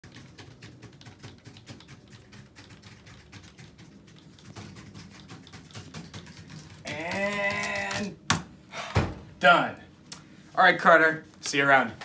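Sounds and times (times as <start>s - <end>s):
computer keyboard typing: 0.0s - 8.1s.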